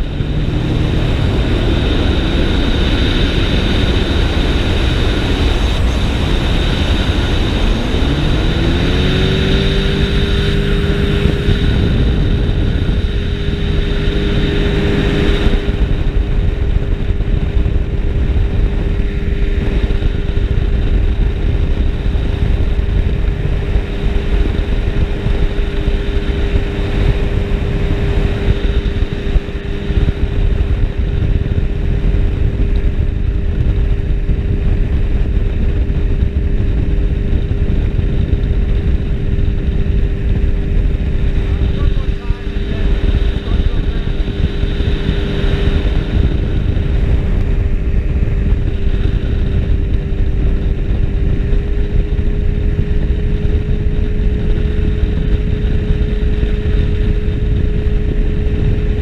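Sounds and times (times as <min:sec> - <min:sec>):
ultralight engine and propeller: 0:00.0 - 0:59.0.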